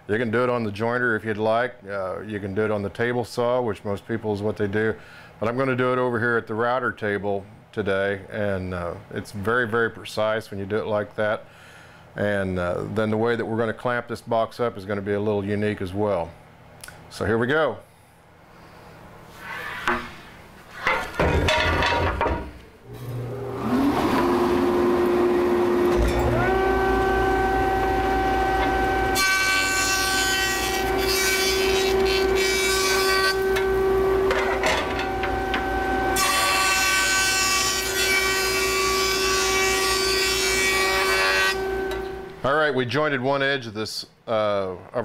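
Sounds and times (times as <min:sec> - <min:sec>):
jointer motor whine: 0:22.9 - 0:37.1.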